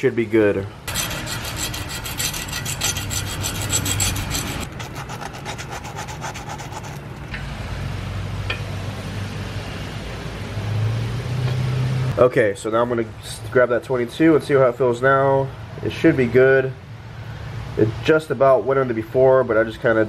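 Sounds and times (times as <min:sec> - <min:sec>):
file rasping on metal: 0:00.9 - 0:07.2.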